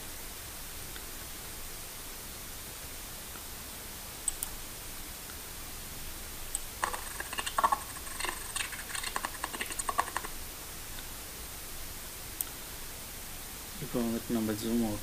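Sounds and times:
steady hiss: 0:00.0 - 0:15.0
sharp clicks: 0:04.2 - 0:04.6, 0:06.5 - 0:10.3.

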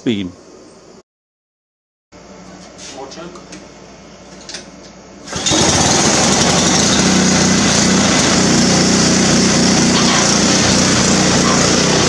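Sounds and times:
small engine running steadily: 0:05.2 - 0:12.0.

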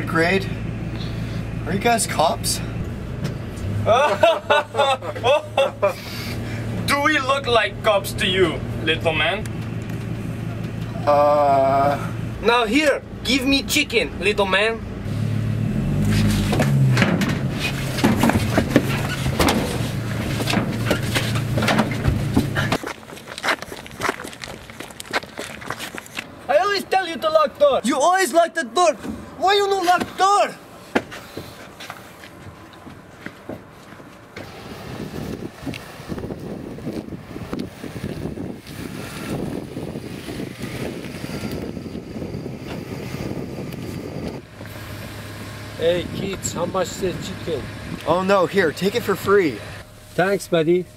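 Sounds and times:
van engine idling: 0:00.0 - 0:27.4, 0:28.8 - 0:50.9
wind buffeting microphone: 0:34.4 - 0:48.2.

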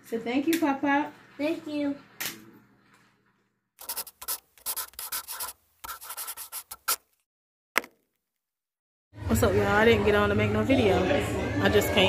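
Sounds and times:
scratchy rubbing noises: 0:03.8 - 0:07.1.

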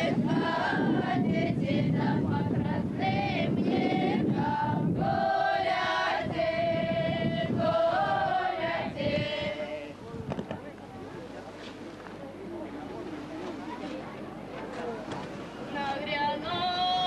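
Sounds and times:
choir singing long held notes: 0:00.0 - 0:09.9
steady low rumble: 0:00.0 - 0:11.4.

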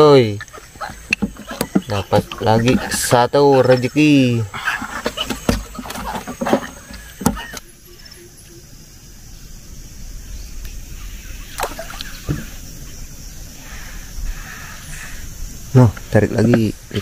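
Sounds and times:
fish flopping on wooden deck: 0:00.0 - 0:03.2, 0:04.6 - 0:07.6.

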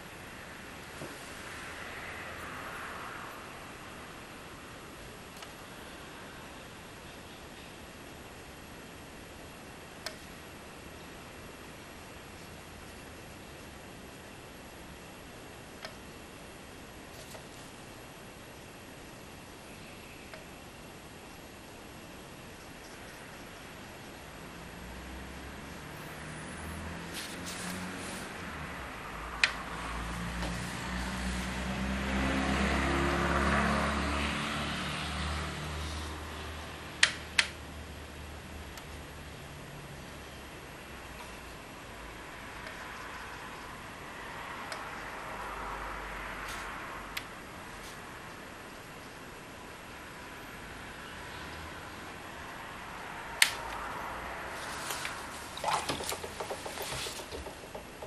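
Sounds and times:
vehicle driving past: 0:24.8 - 0:37.0
sharp clicks: 0:37.0 - 0:37.6, 0:53.4 - 0:53.8
sharp click: 0:53.4 - 0:53.8
brush tapping on paint palette: 0:55.6 - 0:58.0.

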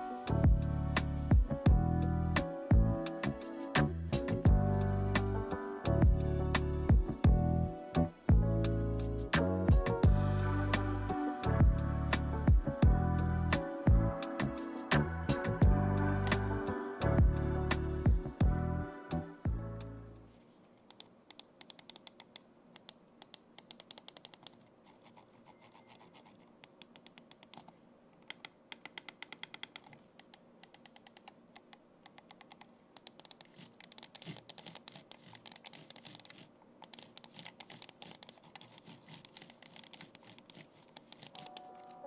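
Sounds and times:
mouse buttons clicking: 0:20.8 - 0:24.6, 0:25.5 - 0:42.0.

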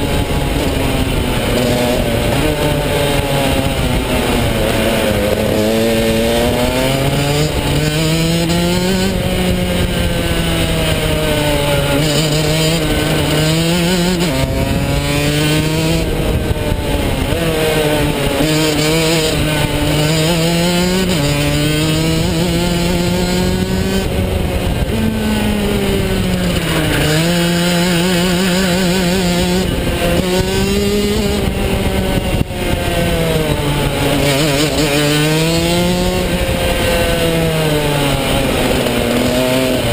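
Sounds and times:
kart engine revving: 0:00.0 - 0:39.9.

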